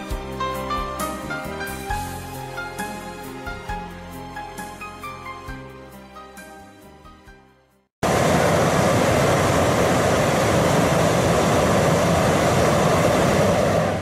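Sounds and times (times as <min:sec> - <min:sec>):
propane burner roaring: 0:08.0 - 0:14.0.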